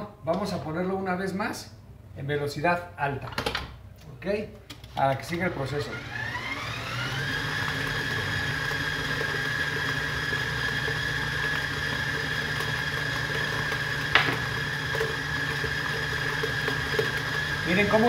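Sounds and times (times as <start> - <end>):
stand mixer motor whining: 5.3 - 18.0.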